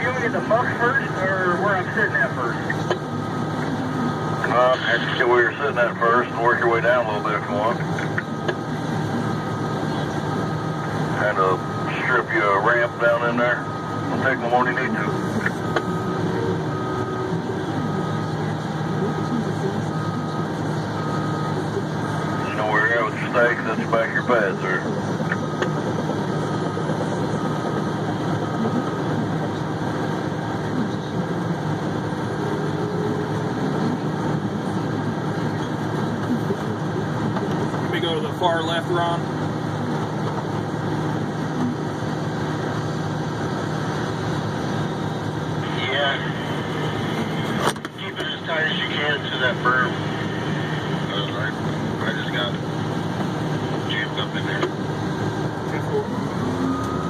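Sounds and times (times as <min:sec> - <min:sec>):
diesel engine running: 0:00.0 - 0:57.0
warning alarm beeping: 0:09.2 - 0:30.2, 0:55.0 - 0:57.0.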